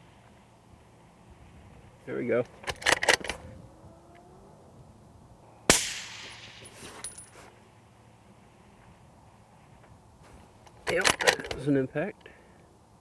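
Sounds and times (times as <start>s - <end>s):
rifle shot with echo: 5.7s - 6.7s.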